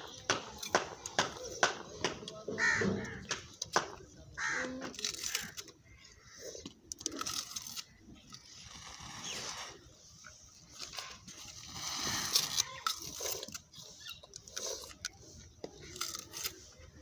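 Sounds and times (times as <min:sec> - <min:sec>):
crackling hiss of flames: 0:11.5 - 0:13.4.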